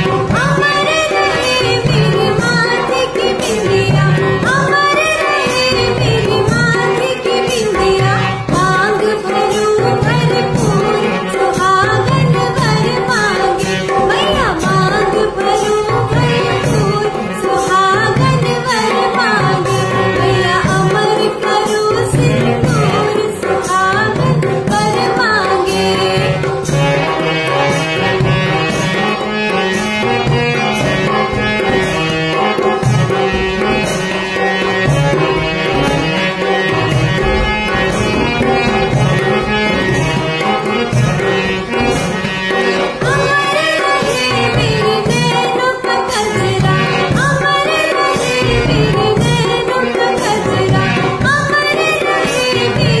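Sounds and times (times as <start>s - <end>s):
drum and instrumental backing: 0.0s - 53.0s
woman singing folk song: 0.4s - 26.3s, 43.0s - 53.0s.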